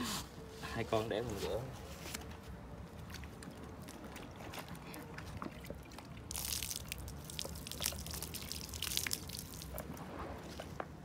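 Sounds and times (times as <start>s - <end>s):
water pouring and splashing: 2.8s - 11.0s
water drips: 2.9s - 10.0s.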